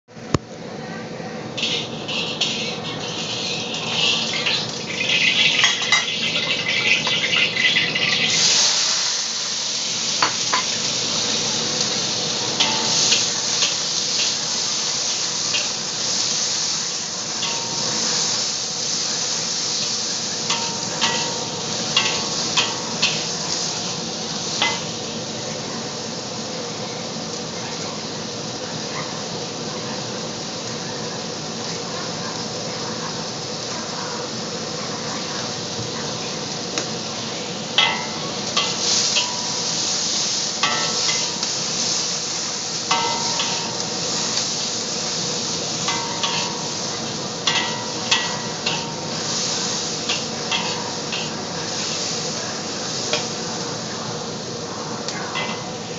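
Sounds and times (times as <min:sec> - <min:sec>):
onions sizzling in hot oil: 0:00.1 - 0:55.9
metal spatula scraping a pan: 0:01.6 - 0:08.4, 0:40.6 - 0:41.6, 0:42.9 - 0:44.4, 0:45.8 - 0:52.2.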